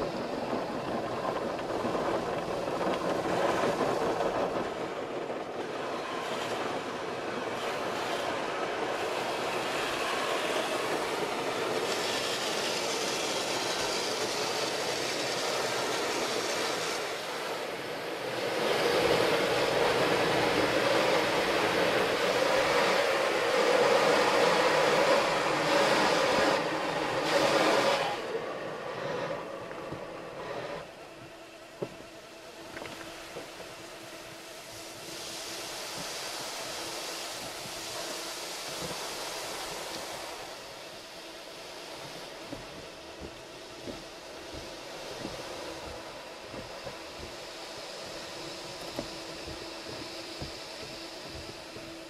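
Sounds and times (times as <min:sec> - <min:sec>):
water spraying: 0:06.0 - 0:29.5, 0:32.8 - 0:52.0
car wash brushes rubbing: 0:09.0 - 0:28.3.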